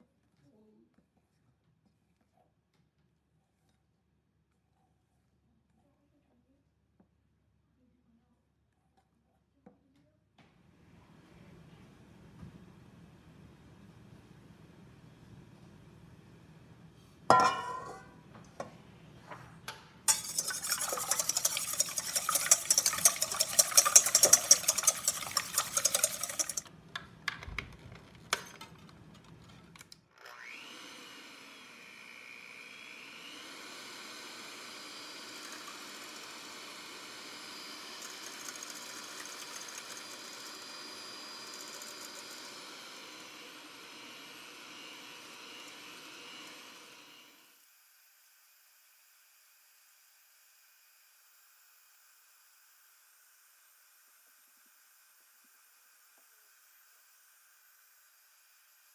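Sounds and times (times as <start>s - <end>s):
electric hand mixer whirring: 20.1s - 26.7s, 30.2s - 47.5s
whisks beating in metal bowl: 20.1s - 26.7s.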